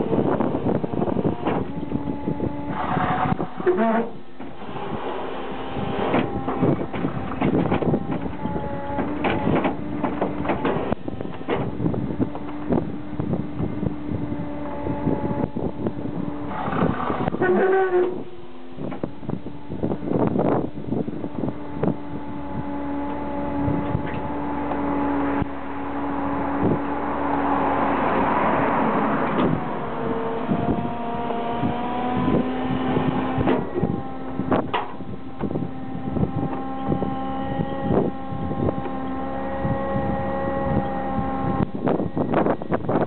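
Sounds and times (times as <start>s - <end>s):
droning engine hum: 0.0s - 43.0s
wind buffeting microphone: 0.0s - 43.0s
vehicle passing: 23.2s - 34.3s.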